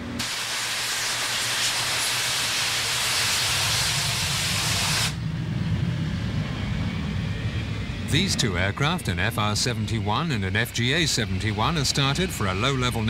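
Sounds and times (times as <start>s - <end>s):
loud hissing rush: 0.0s - 13.0s
low rumbling drone: 3.2s - 13.0s.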